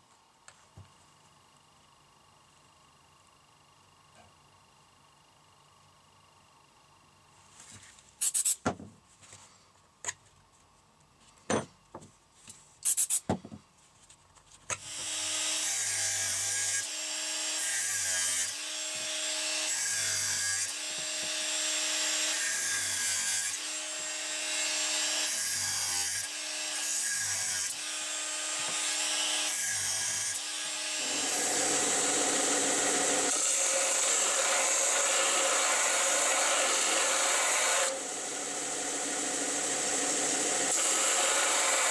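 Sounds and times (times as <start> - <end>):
angle grinder cutting wood: 14.8 - 41.9
belt sander running: 18.5 - 22.4, 27.8 - 41.9.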